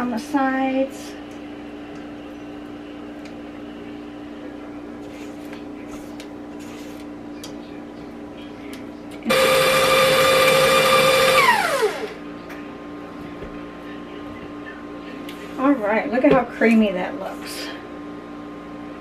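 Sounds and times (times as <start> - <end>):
stand mixer motor whine: 9.3 - 12.2.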